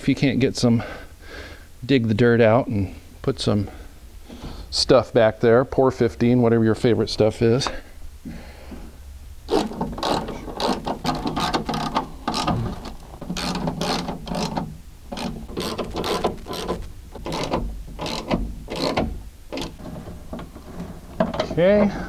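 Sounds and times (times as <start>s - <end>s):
window crank gears clicking: 9.5s - 21.6s.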